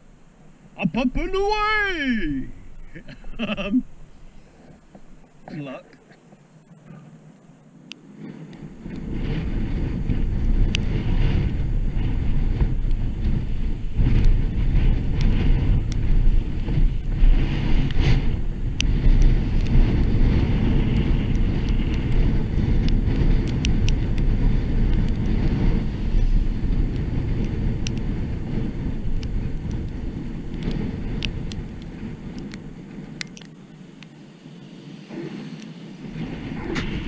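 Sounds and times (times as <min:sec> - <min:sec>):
wind rumbling on microphone: 0:00.0 - 0:37.0
small ticks: 0:04.7 - 0:09.1, 0:10.6 - 0:10.9, 0:15.2 - 0:16.1, 0:18.7 - 0:19.8, 0:20.9 - 0:25.4, 0:26.9 - 0:28.1, 0:29.1 - 0:34.2.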